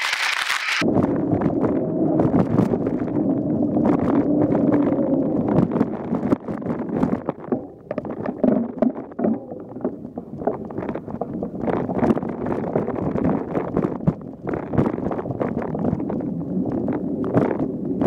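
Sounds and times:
bike tyres rolling: 0.0s - 18.0s
wind on microphone: 0.0s - 18.0s.

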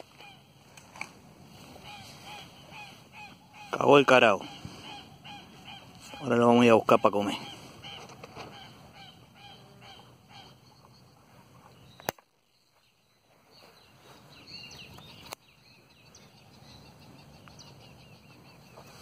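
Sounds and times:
faint outdoor ambience: 0.0s - 19.0s
bird chirps: 1.8s - 19.0s.

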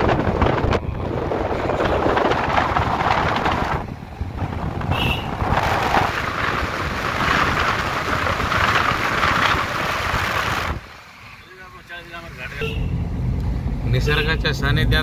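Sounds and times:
wind buffeting microphone: 0.0s - 10.9s
road noise: 0.0s - 15.0s.

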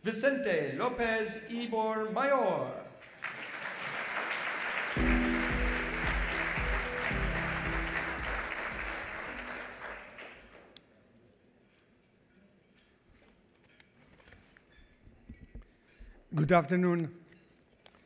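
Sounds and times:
audience applauding: 3.0s - 10.8s
music with a low beat: 5.0s - 9.5s.

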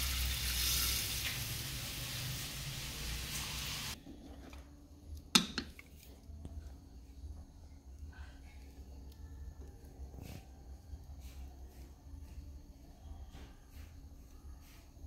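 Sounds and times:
utensil knocking against pot: 5.4s - 5.8s.

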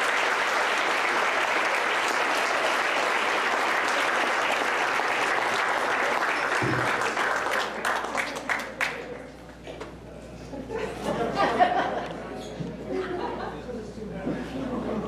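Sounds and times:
crowd applauding: 0.0s - 9.4s.

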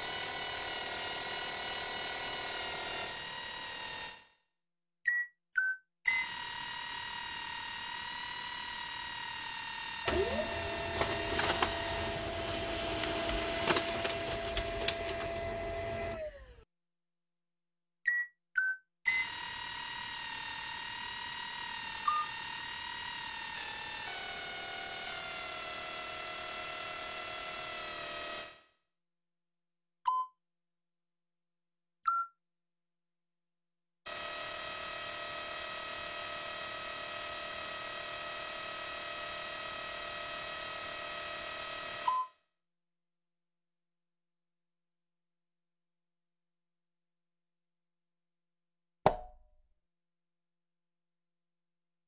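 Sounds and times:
synthesized motor whine: 9.9s - 16.6s
idle hum: 10.1s - 16.6s.

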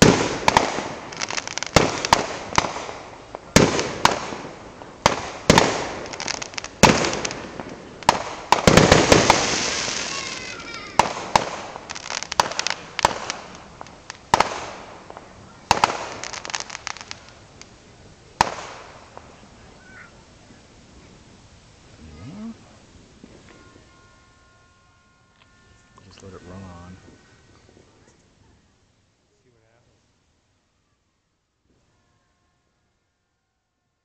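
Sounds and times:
fireworks bursting with bangs: 0.0s - 28.8s
fireworks crackling: 0.0s - 33.0s.

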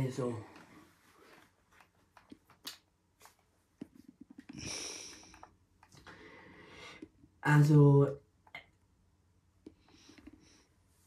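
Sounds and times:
noisy exhale through nose: 4.5s - 5.4s.

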